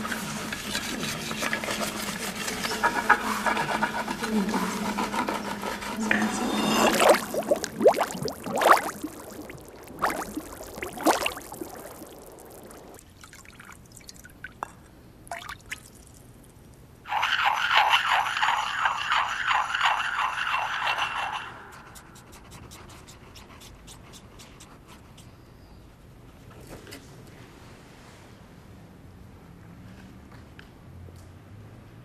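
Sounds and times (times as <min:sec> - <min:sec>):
water dripping into wet clay: 0:06.9 - 0:16.5
wet clay scraping by hand: 0:17.1 - 0:22.1.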